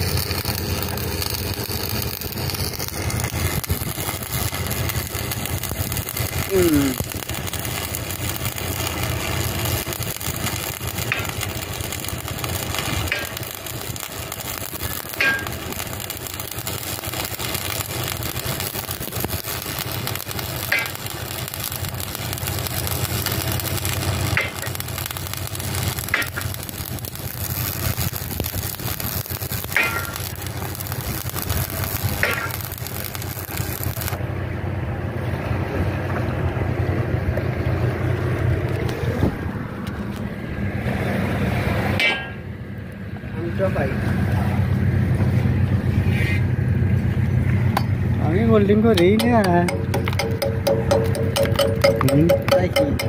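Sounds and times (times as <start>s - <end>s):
welding arc crackling and hissing: 0.0s - 34.2s, 45.5s - 53.0s.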